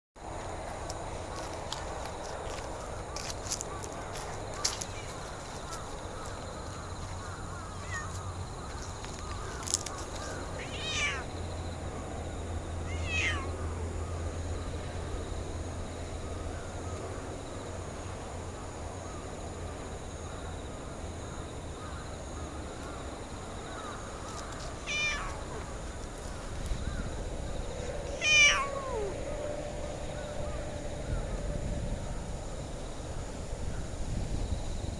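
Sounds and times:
cat meowing: 7.7 - 8.2, 10.6 - 11.3, 12.9 - 13.6, 24.8 - 25.6, 28.1 - 29.2.

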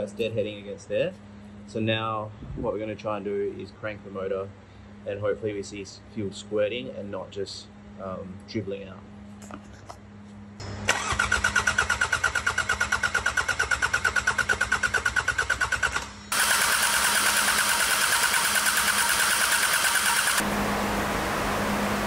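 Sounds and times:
diesel engine cranking: 10.6 - 22.0.

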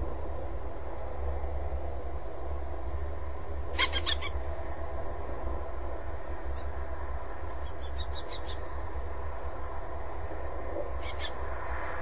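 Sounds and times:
steady low hum: 0.0 - 12.0
bird harsh calls: 3.8 - 4.4, 7.6 - 8.6, 11.0 - 11.4.

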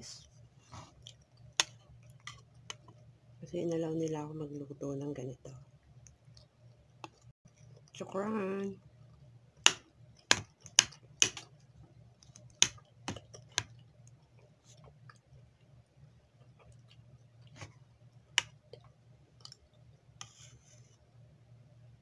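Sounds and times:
faint low hum: 0.0 - 22.0
eating clicks and crunches: 12.2 - 15.3.

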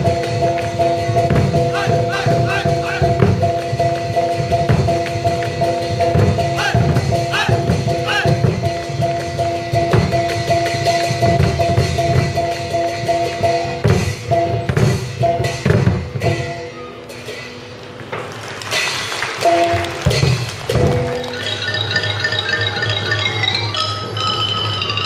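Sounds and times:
large drums driving rhythm: 0.0 - 16.6, 18.7 - 21.3.

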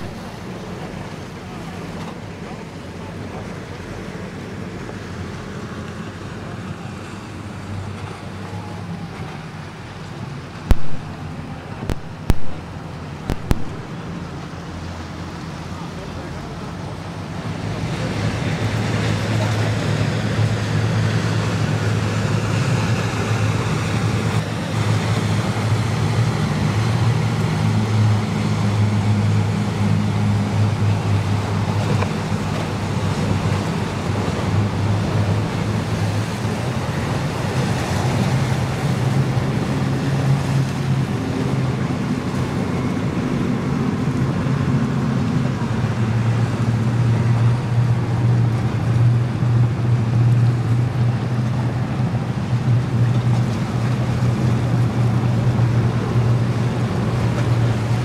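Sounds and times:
wind noise: 0.0 - 0.3, 10.6 - 14.0
boat engines droning: 0.0 - 58.0
waves washing: 0.0 - 58.0.

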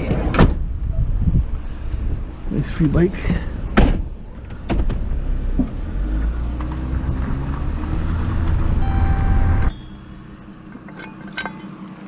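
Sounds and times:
vehicle engine and road rumble: 0.0 - 12.0
high-pitched tone: 8.8 - 10.3.

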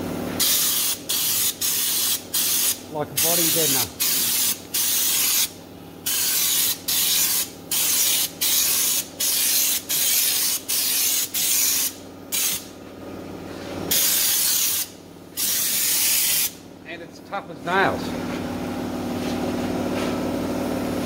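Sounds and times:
spray gun hissing bursts: 0.4 - 12.7, 13.9 - 16.6.

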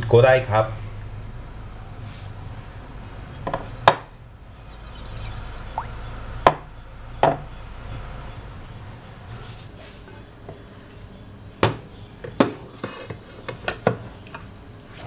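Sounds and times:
light rubbing: 4.5 - 6.0.

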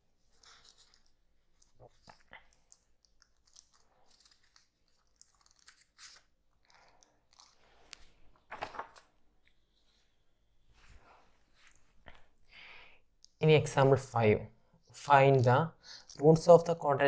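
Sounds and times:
paper rustling and crinkling: 0.2 - 10.1.

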